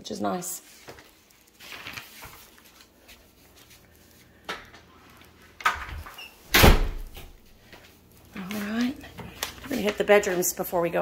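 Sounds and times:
footsteps on tile floor: 7.0 - 10.6.

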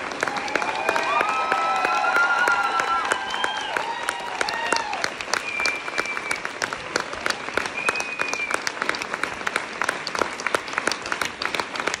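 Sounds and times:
audience applauding: 0.0 - 12.0
high held whistle: 5.3 - 6.4, 7.8 - 8.6.

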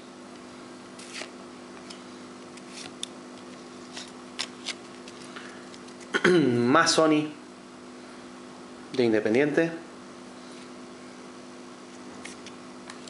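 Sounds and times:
steady low hum: 0.0 - 13.0
trading cards flicking and rustling: 1.0 - 6.2, 11.9 - 13.0.

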